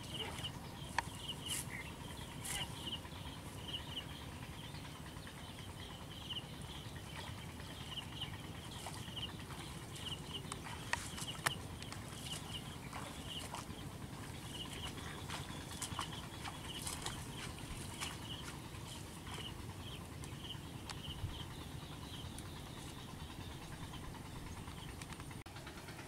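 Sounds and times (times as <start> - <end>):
small animal chirping: 0.0 - 4.2.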